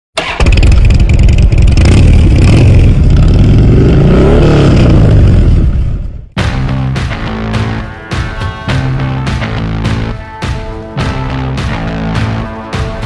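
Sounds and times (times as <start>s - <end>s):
motorcycle engine revving: 0.2s - 7.8s
rock music: 6.4s - 13.0s.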